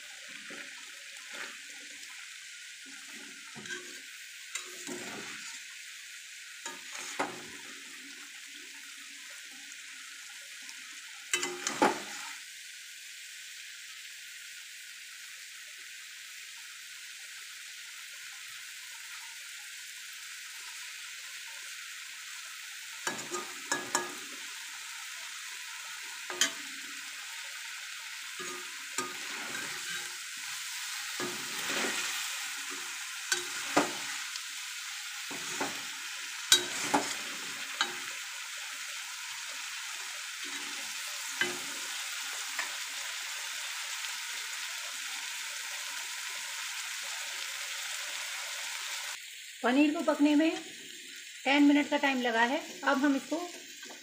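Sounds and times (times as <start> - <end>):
cheese sizzling in hot oil: 0.0 - 54.0
spatula scraping a pan: 0.3 - 2.1, 2.8 - 5.6, 6.6 - 7.7, 23.0 - 24.6, 26.0 - 34.4, 35.1 - 38.2, 40.4 - 42.8.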